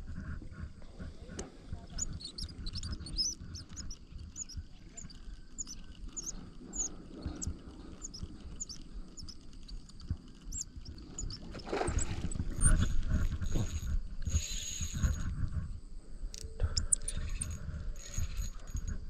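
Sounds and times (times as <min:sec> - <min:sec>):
rumbling and knocking of fishing rod: 0:00.0 - 0:15.8
thin high whine: 0:00.2 - 0:19.0
small birds chirping: 0:01.7 - 0:12.8, 0:16.7 - 0:18.4.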